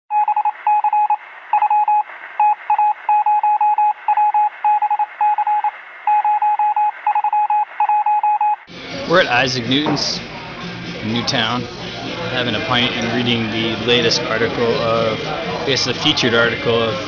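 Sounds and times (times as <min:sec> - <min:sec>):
morse code beeping: 0:00.1 - 0:08.7.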